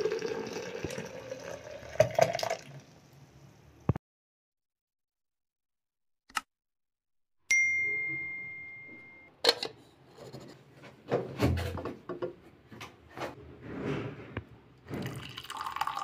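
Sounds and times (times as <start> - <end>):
clear ding: 7.5 - 9.3.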